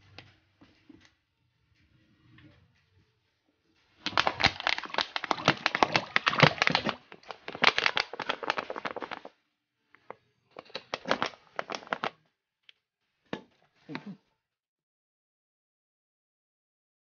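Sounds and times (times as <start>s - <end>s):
plaster spluttering from squeezed bottle: 4.0s - 9.2s.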